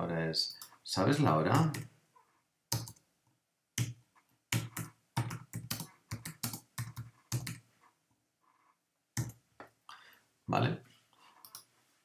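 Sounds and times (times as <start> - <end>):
typing on computer keyboard: 2.7 - 3.0, 3.8 - 7.6.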